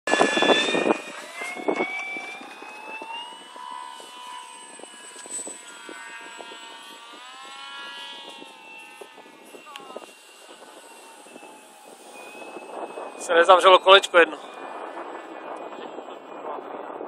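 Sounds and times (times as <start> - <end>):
model airplane motor whine: 0.1 - 17.0.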